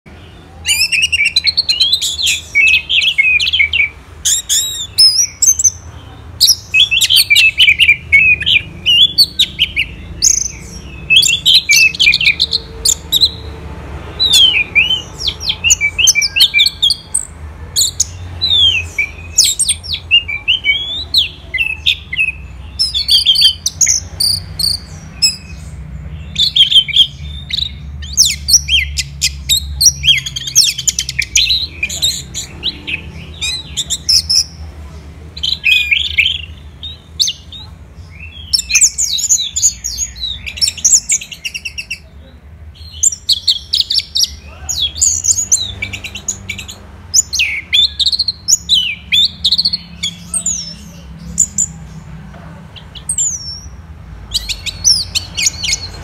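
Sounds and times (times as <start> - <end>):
bird singing whistled phrases: 0.6 - 5.8.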